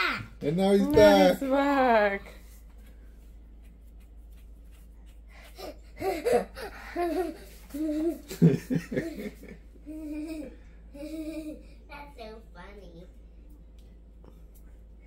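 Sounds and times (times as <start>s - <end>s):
laughter: 6.0s - 9.9s.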